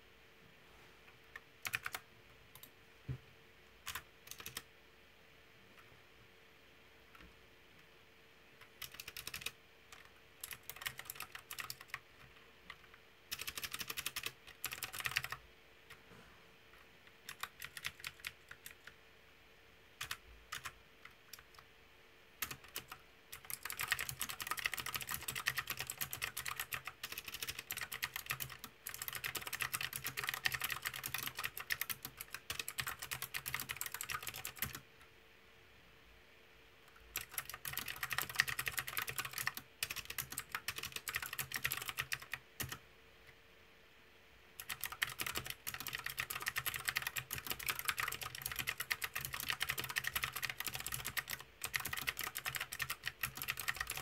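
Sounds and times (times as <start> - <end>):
mechanical keyboard typing: 1.3 - 2.7, 3.8 - 4.7, 8.6 - 16.0, 17.2 - 19.0, 20.0 - 21.6, 22.4 - 34.8, 36.9 - 42.8, 44.6 - 54.0.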